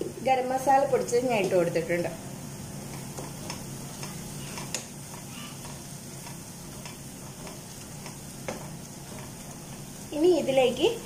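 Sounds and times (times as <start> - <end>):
masala sizzling in a frying pan: 0.0 - 11.0
spatula tapping and scraping pan: 2.8 - 9.9.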